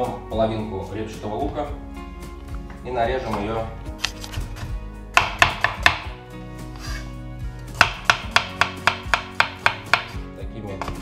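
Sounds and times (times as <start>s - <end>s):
knife slicing onion on wooden board: 7.8s - 10.2s.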